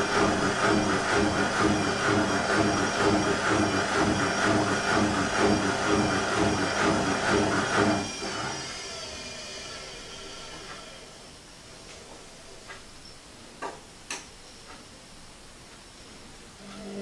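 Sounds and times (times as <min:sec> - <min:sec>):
washing machine drum churning: 0:00.0 - 0:09.0.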